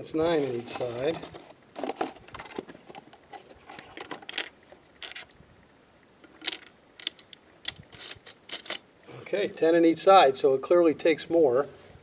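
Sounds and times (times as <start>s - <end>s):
shotgun shells clicking into magazine: 4.1s - 5.3s, 6.2s - 8.8s.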